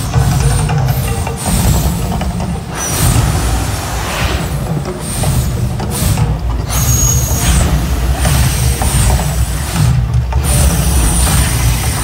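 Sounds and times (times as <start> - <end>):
deep rumble: 1.5 - 12.0
hissing fire whooshes: 2.8 - 5.8.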